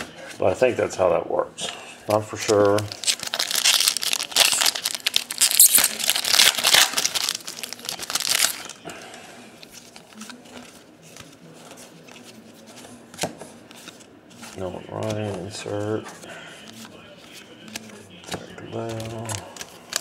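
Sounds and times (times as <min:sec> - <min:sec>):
faint handling of cards: 0:02.1 - 0:20.0
foil wrapper tearing and crinkling: 0:02.5 - 0:08.7.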